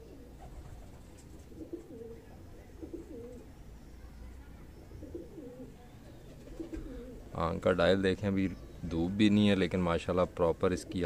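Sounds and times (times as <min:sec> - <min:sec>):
pigeon cooing: 0:00.0 - 0:07.4, 0:10.7 - 0:11.0.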